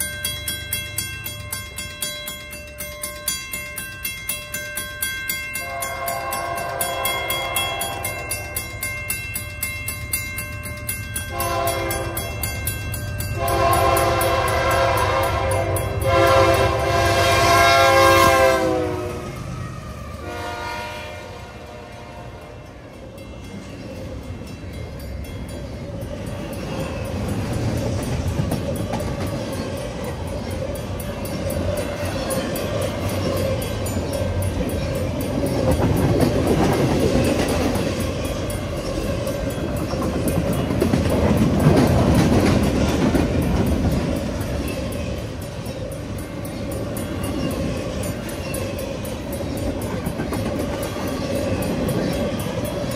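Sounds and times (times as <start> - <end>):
train rumble: 0.0 - 52.9
locomotive horn blasts: 5.6 - 8.3, 11.3 - 12.3, 13.4 - 19.4, 20.2 - 22.6.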